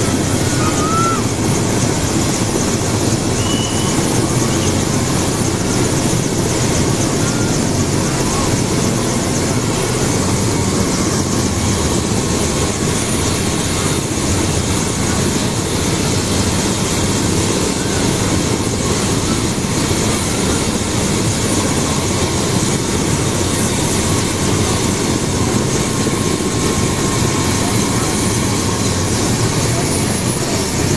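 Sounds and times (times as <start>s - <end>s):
helicopter engine and rotor: 0.0s - 30.9s.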